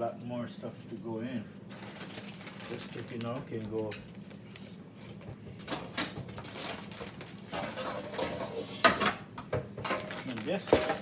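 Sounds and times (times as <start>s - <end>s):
groceries rustling: 1.2s - 8.8s, 9.8s - 11.0s.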